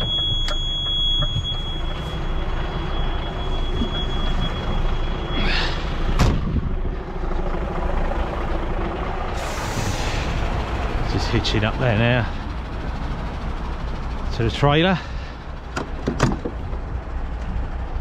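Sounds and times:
continuous high tone: 0.0s - 8.7s
truck diesel engine idling: 0.0s - 18.0s.

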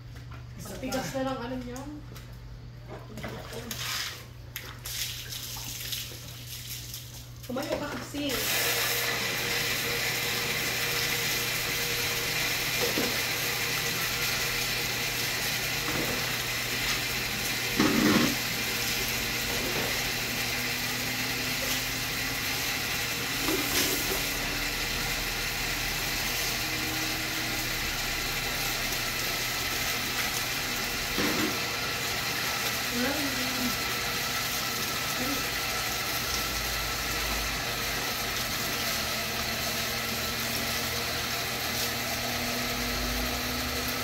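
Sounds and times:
water splashing: 3.1s - 7.7s
water running from a hose: 3.3s - 44.0s.

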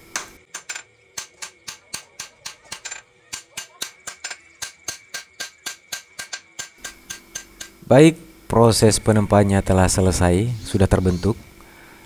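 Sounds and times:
hammer striking blade on anvil: 0.1s - 7.8s.

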